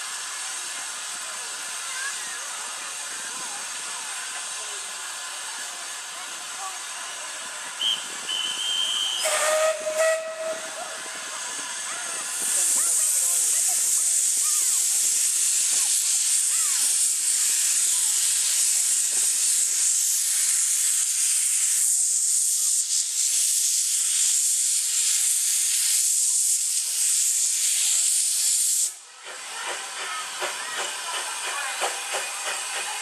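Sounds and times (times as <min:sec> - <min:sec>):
steam locomotive hissing steam: 0:00.0 - 0:33.0
locomotive clanking on rails: 0:29.2 - 0:33.0.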